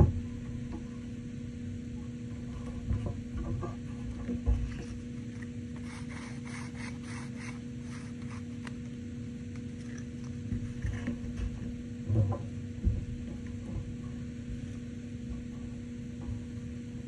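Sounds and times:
steady electrical hum: 0.0s - 17.0s.

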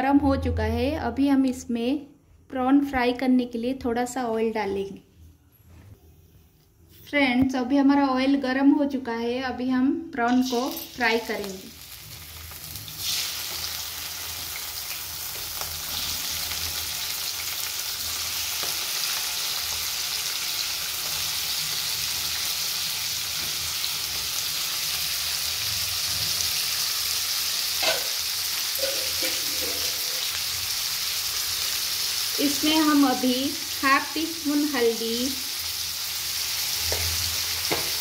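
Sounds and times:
prawns sizzling in hot oil: 10.3s - 38.0s.

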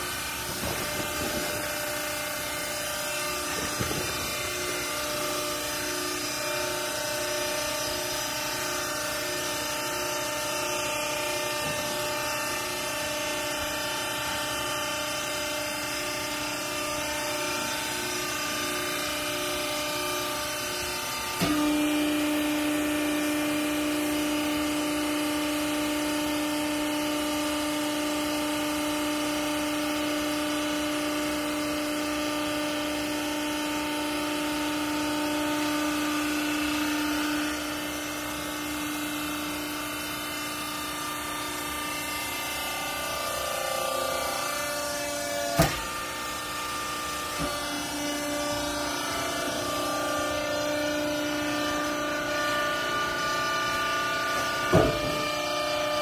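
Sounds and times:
electric pump motor humming: 0.0s - 56.0s.

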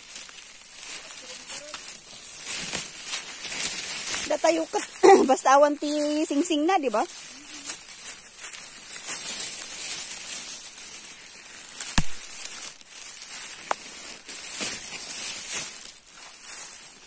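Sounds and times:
leaves and twigs rustling: 0.0s - 17.0s
sharp knock: 12.0s - 12.3s.

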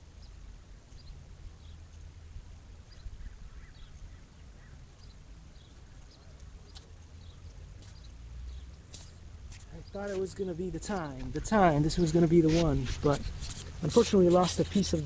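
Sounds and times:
small birds chirping: 0.0s - 15.0s
wind rumbling on microphone: 2.2s - 6.3s.

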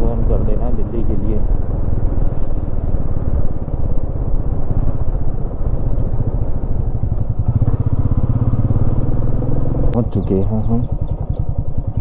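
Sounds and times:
motorcycle engine running: 0.0s - 12.0s
deeper engine note: 5.6s - 12.0s.

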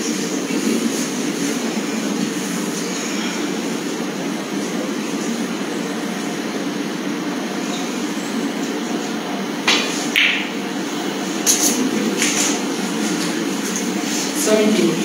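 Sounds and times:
steady background hum: 0.0s - 15.0s
cue tip hitting ball: 9.6s - 10.6s
snooker balls clicking: 9.7s - 10.6s.

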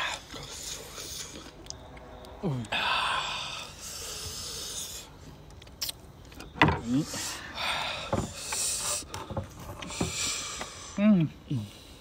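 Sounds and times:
hissing mouth sounds: 0.0s - 1.8s, 2.6s - 6.1s
eating clicks: 0.1s - 3.0s, 3.6s - 6.5s.

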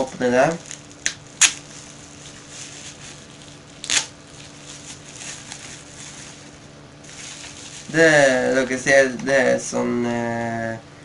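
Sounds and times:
sharp plastic crackles: 0.1s - 8.3s
plastic packaging crinkling: 0.1s - 8.8s.

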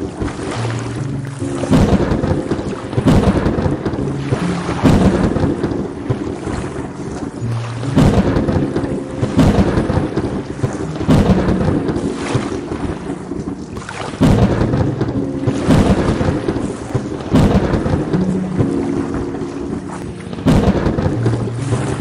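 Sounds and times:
steady rain: 0.0s - 22.0s
thunder rolling: 1.4s - 22.0s.

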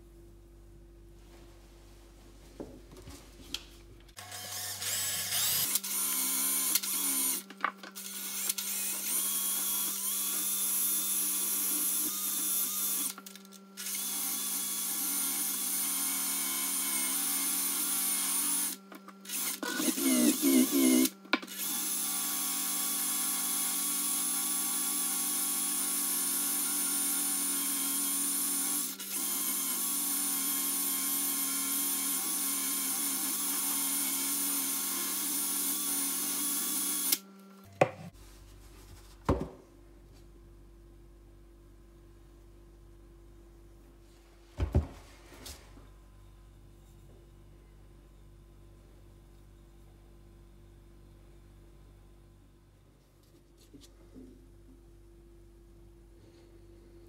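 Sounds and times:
cordless drill whining: 4.2s - 7.4s, 8.0s - 37.2s.

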